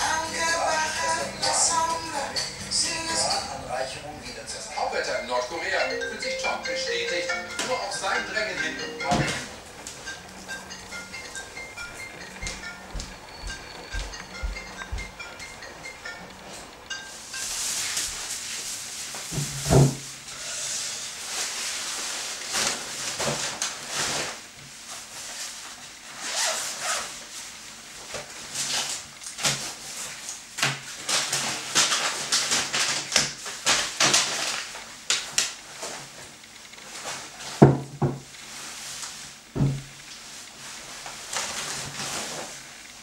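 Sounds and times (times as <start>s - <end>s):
bags and jacket rustling: 26.2s - 27.2s
groceries knocking on wooden table: 37.6s - 38.3s, 39.6s - 39.9s.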